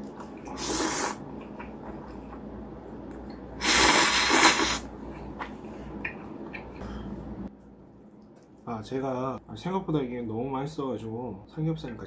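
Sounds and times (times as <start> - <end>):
noodles slurped loudly: 3.6 - 4.9.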